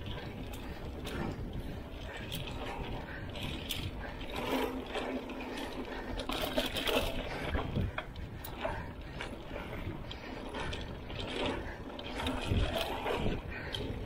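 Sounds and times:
bike hub clicking and rattling: 0:00.0 - 0:14.0
wind and tyre rumble: 0:00.0 - 0:14.0.

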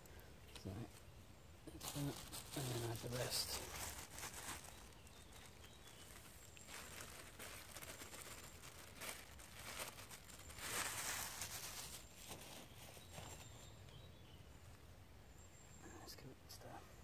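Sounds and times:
plastic bag crinkling: 0:01.8 - 0:13.5.

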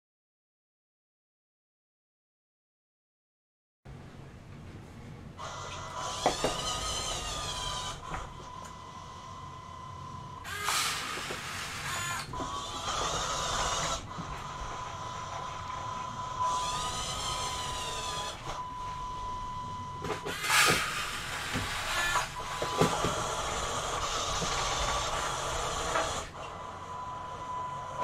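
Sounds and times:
drive motor whirring: 0:05.4 - 0:28.0
electric motor whine: 0:05.4 - 0:28.0.

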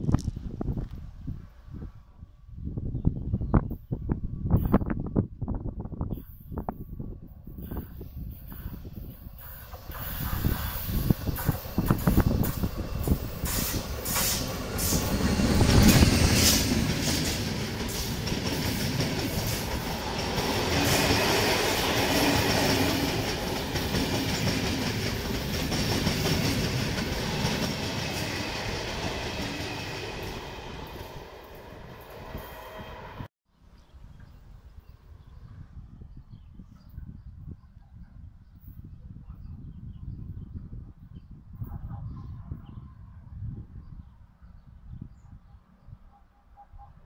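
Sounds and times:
train passing rumble: 0:07.1 - 0:33.3.

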